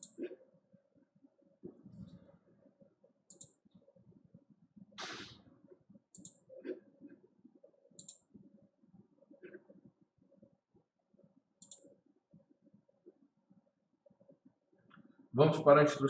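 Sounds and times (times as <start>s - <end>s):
faint high-pitched clicks: 11.6s - 11.9s.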